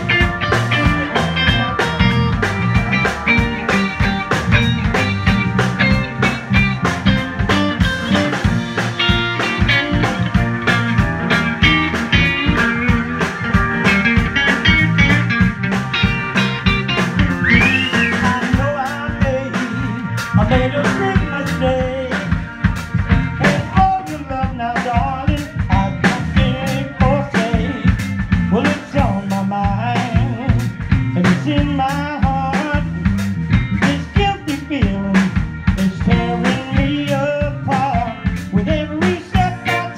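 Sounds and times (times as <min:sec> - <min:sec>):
lead guitar bending notes: 0:00.0 - 0:39.9
live rock band playing: 0:00.0 - 0:39.9
man singing: 0:17.5 - 0:22.4, 0:23.4 - 0:33.0, 0:33.8 - 0:39.9.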